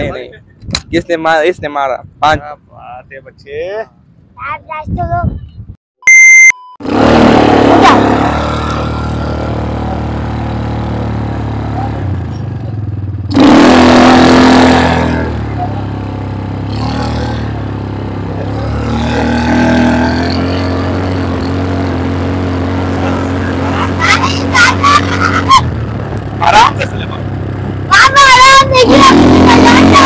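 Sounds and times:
small bike engine running: 6.8s - 30.0s.

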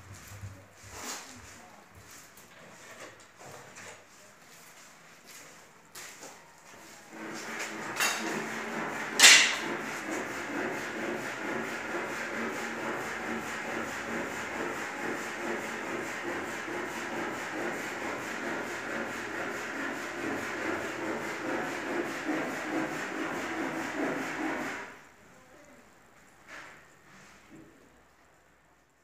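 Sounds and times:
rough rubbing noise: 7.1s - 25.0s.

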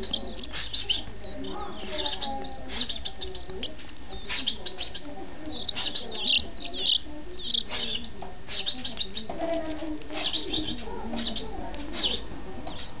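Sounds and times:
bird chirping high calls: 0.0s - 9.3s, 10.2s - 13.0s.

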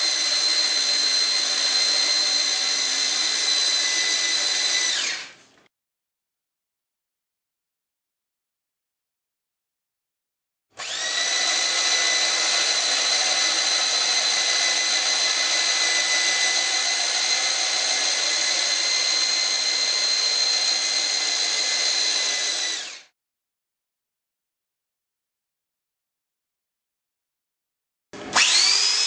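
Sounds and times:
drill boring into wood: 0.0s - 5.4s, 10.8s - 23.1s, 28.2s - 29.0s.

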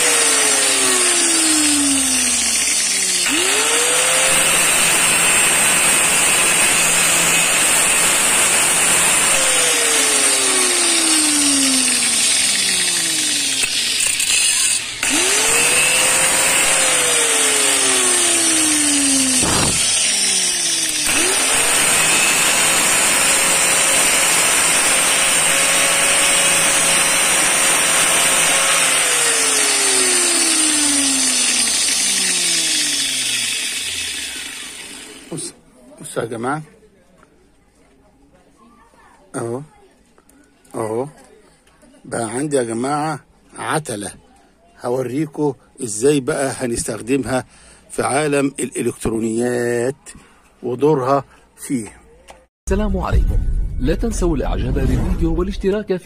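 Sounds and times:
angle grinder grinding steel rod: 0.0s - 35.6s.

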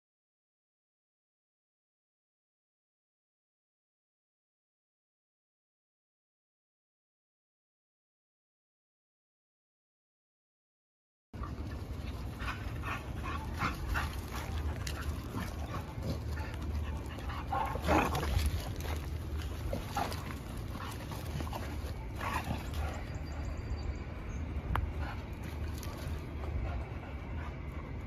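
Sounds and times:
dogs vocalizing while playing: 11.4s - 23.8s.

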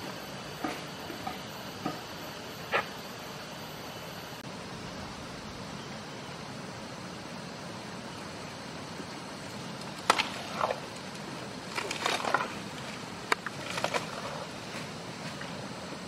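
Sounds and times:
elephant chewing and crunching: 10.5s - 15.6s.

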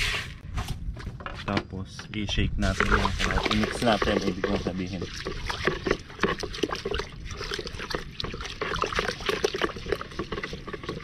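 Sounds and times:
pellets and water sloshing in container: 2.6s - 11.0s.

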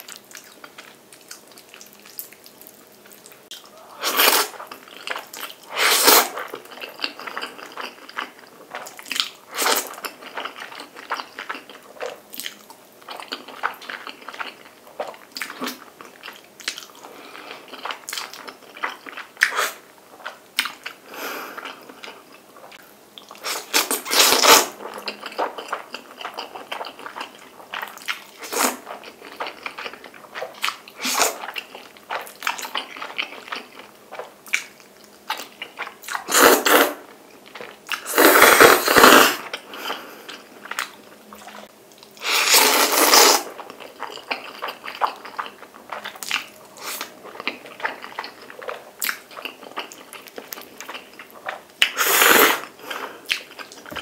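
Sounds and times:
wet chewing: 0.0s - 21.0s, 21.6s - 52.6s, 53.3s - 54.0s
noodles being slurped: 4.0s - 6.5s, 23.4s - 25.0s, 36.1s - 37.1s, 37.9s - 39.6s, 42.2s - 43.6s, 51.4s - 52.8s.

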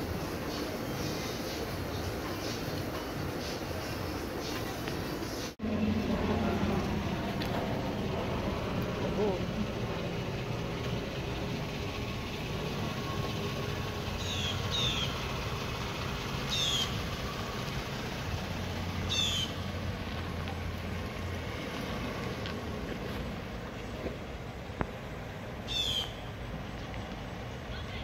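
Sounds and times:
car engine rumbling: 0.0s - 28.0s.

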